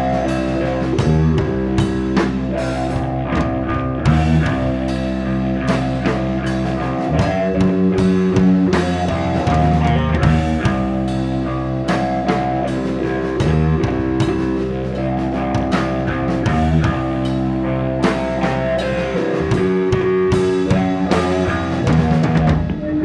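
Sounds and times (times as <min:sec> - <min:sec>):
bass guitar: 0:00.0 - 0:23.0
drum kit: 0:00.0 - 0:23.0
electric guitar: 0:00.0 - 0:23.0.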